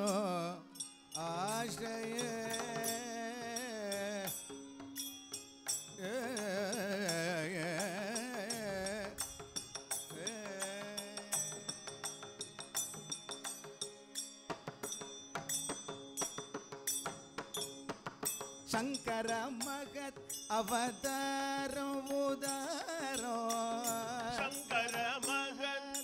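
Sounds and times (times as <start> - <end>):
man singing ornamented phrases: 0.0 - 4.5, 6.0 - 9.4, 10.1 - 11.7, 18.7 - 26.0.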